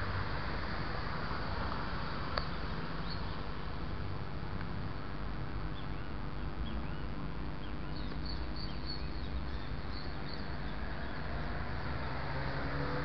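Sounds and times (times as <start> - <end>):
traffic on a wet road: 0.0 - 4.7, 10.5 - 13.0.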